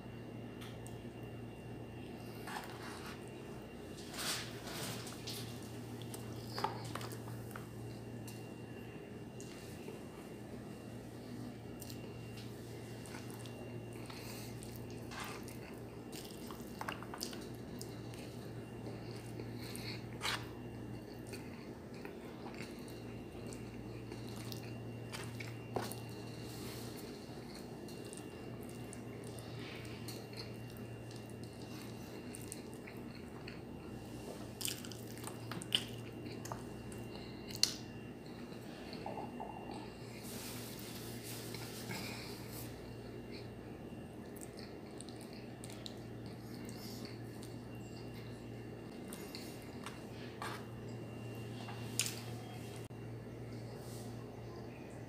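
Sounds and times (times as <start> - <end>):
steady low hum: 0.0 - 55.0
chewing food: 11.6 - 40.2, 41.5 - 52.6
wet squelches and clicks: 44.2 - 46.7.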